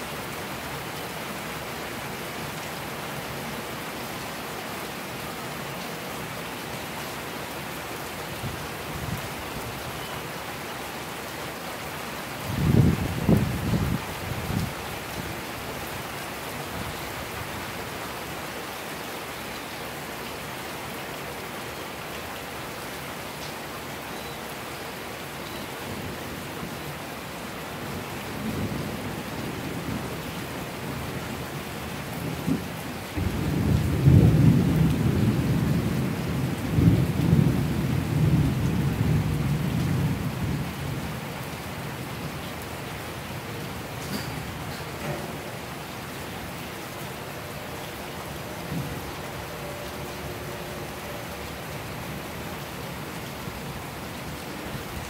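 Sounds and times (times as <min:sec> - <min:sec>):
steady rain: 0:00.0 - 0:55.0
thunder rumbling: 0:32.3 - 0:41.0.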